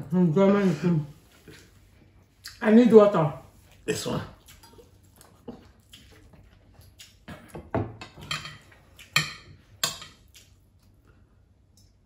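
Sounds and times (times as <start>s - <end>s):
dishes and cutlery clinking: 7.3s - 10.3s.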